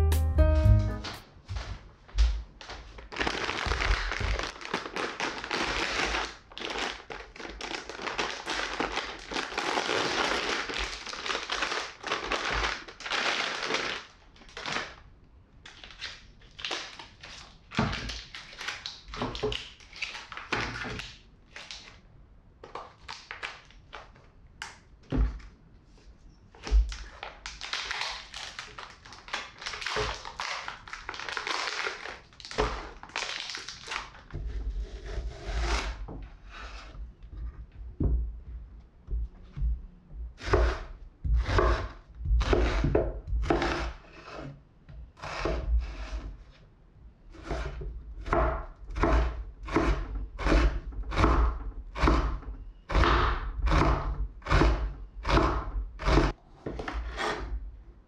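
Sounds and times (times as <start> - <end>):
plastic packaging crinkling: 2.7 - 15.1, 15.7 - 22.0, 22.6 - 24.2, 26.8 - 34.3.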